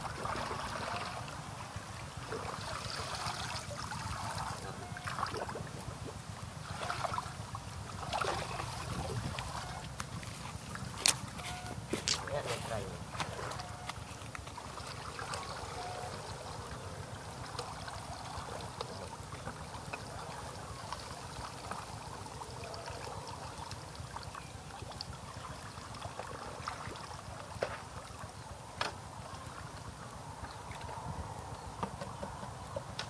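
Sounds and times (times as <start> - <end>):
water sloshing and trickling: 0.0 - 33.0.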